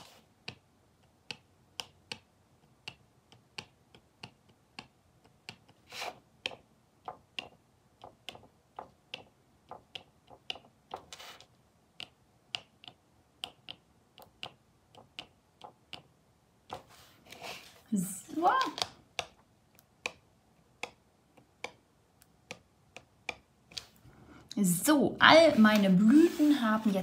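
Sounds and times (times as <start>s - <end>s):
hand scraping on card: 5.8s - 6.2s
pen tip tapping on cardboard: 18.7s - 23.9s.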